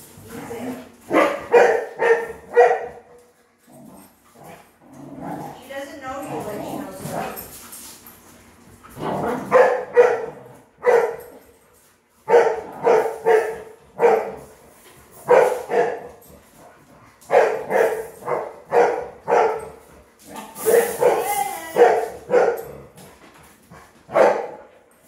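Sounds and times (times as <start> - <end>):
dog barking: 1.1 - 3.0, 9.5 - 11.3, 12.3 - 14.4, 15.3 - 16.1, 17.3 - 19.7, 20.6 - 22.7, 24.1 - 24.6.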